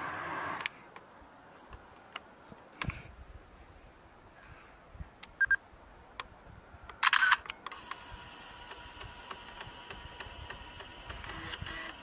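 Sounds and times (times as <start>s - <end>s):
camera shutter: 7.0s - 12.0s
floppy disk drive whirring: 7.9s - 12.0s.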